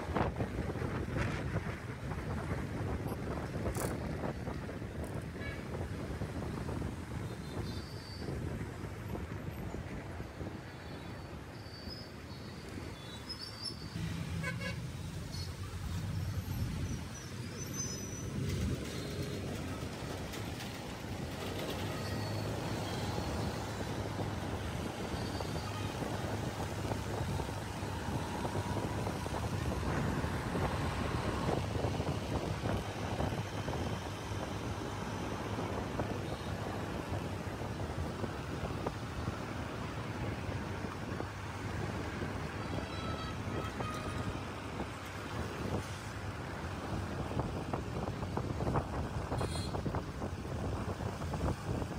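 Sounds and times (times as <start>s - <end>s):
traffic engines rumbling: 0.0s - 51.9s.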